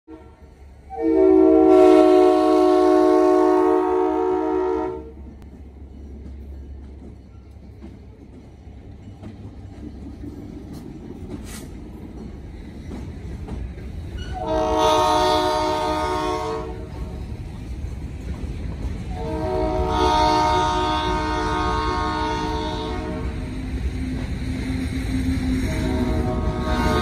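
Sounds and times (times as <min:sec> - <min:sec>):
train air horn: 0:00.1 - 0:05.3, 0:14.2 - 0:17.2, 0:19.1 - 0:23.6, 0:25.5 - 0:27.0
locomotive engines rumbling: 0:00.1 - 0:27.0.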